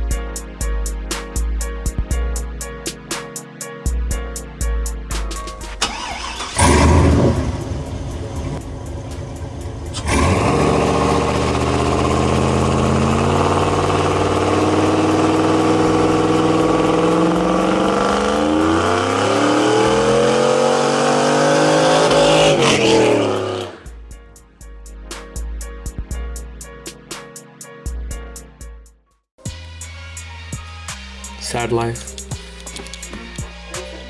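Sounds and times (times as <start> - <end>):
truck engine accelerating: 5.7 - 24.0
pickup exhaust burst: 5.8 - 23.9.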